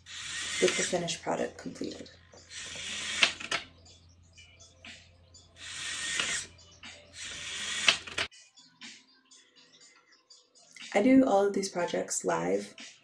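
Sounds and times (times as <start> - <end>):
servo motors whirring: 0.0 - 1.0, 2.4 - 3.7, 5.6 - 6.5, 7.2 - 8.3
servo click stopping: 2.6 - 3.7, 7.2 - 8.3.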